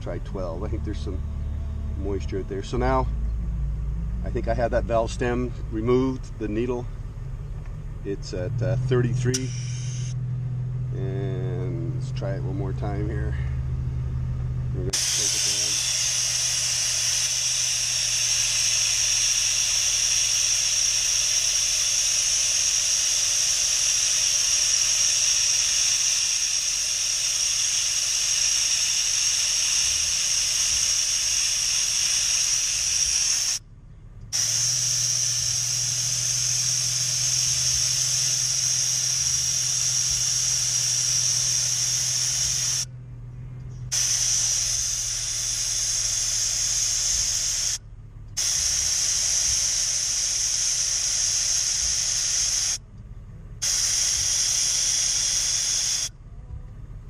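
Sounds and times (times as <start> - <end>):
air hissing out of a tire: 9.3 - 10.2, 14.9 - 33.6, 34.3 - 42.9, 43.9 - 47.8, 48.4 - 52.8, 53.6 - 56.2.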